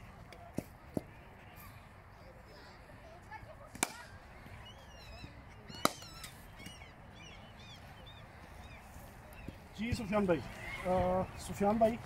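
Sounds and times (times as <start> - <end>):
birds chirping faintly: 4.2 - 12.0.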